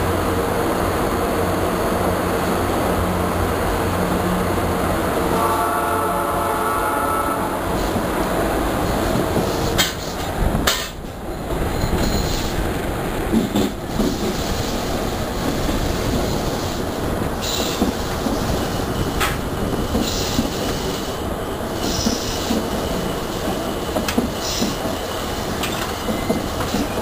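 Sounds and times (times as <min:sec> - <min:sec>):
train wheels rumbling on rails: 0:00.0 - 0:27.0.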